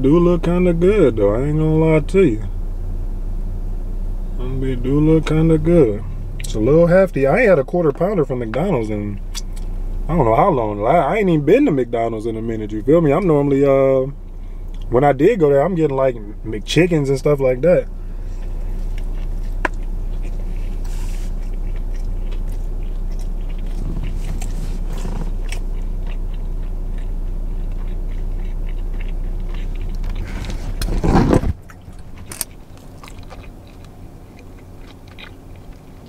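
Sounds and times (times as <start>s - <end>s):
steady low hum: 0.0s - 36.0s
man chewing: 17.9s - 36.0s.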